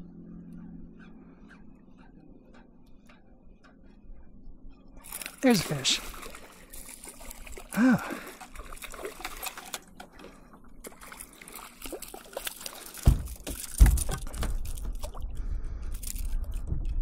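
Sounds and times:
low rumble: 0.0 - 5.0, 13.2 - 17.0
water splashing and trickling: 5.0 - 17.0
dull thumps: 13.0 - 15.2.

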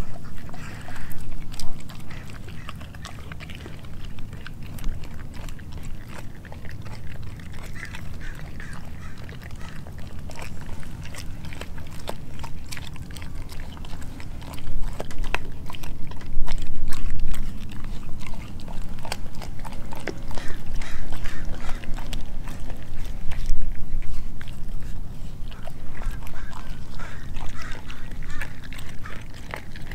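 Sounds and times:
dog chewing and gnawing: 0.0 - 29.9
teeth clicking: 25.4 - 29.9.

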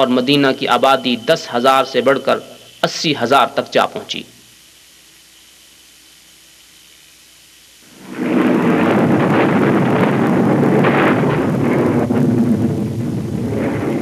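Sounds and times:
faint hiss: 0.0 - 14.0
thunder-like rumbling: 7.9 - 14.0.

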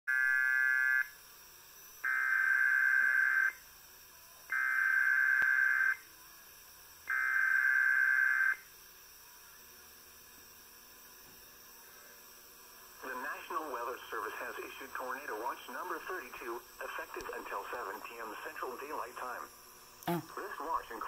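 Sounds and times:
emergency alert data tone bursts: 2.0 - 3.6, 4.5 - 6.0, 7.1 - 8.6.

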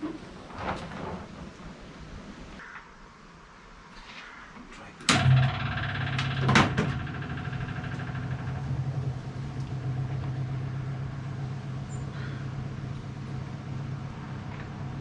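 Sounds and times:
race engine starting and idling: 5.1 - 15.0.

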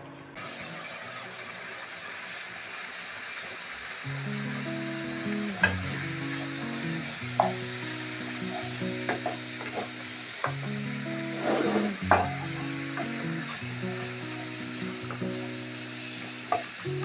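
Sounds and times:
meat sizzling in frying pan: 0.4 - 17.0
spatula knocking and scraping pan: 7.4 - 7.7, 8.5 - 10.6, 11.3 - 12.4.

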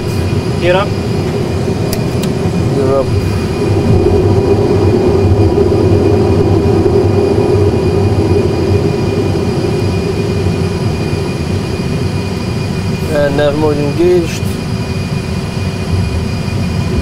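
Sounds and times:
jet engine and airflow rumble: 0.0 - 17.0.

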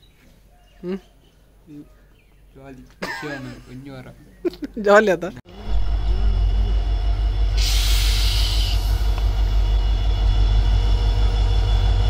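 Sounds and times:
train engine and rail rumble: 5.5 - 12.0
burst of hissing: 7.6 - 9.6.

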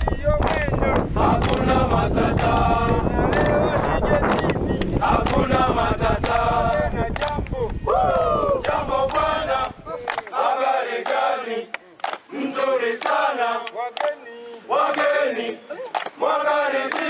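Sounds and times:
wind buffeting microphone: 0.0 - 10.3
men singing a chant: 0.0 - 17.0.

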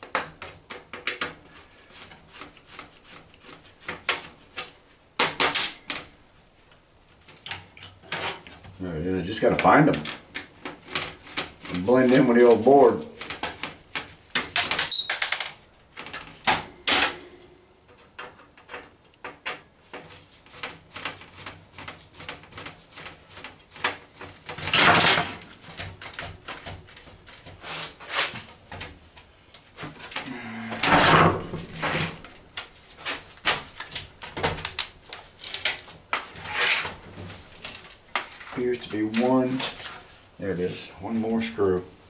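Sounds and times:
screwdriver scraping on metal: 35.4 - 37.0.

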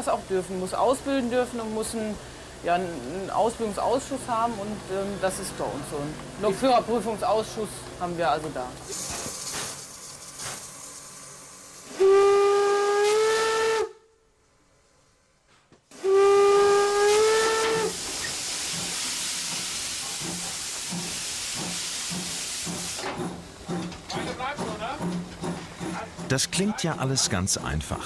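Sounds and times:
steam hissing: 8.8 - 13.6, 16.0 - 23.3
steam locomotive whistle: 11.9 - 14.0, 15.9 - 18.0.

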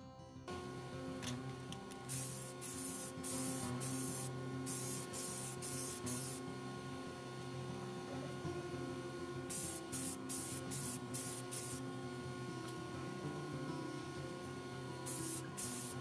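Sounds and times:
steady low hum: 0.5 - 16.0
aerosol can spraying: 1.2 - 6.5, 9.5 - 11.9, 15.0 - 16.0.

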